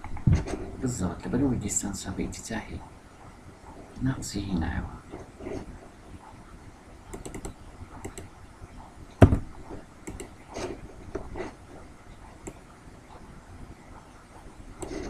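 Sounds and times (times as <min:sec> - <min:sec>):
keyboard keystrokes and clicks: 0:07.1 - 0:08.3, 0:10.0 - 0:10.4.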